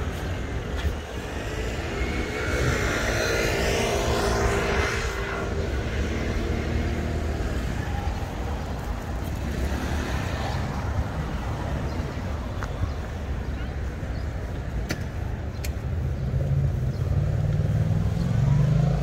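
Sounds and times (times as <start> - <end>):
city street traffic rumble: 0.0 - 19.0
vehicle passing close by: 1.2 - 11.5, 16.5 - 19.0.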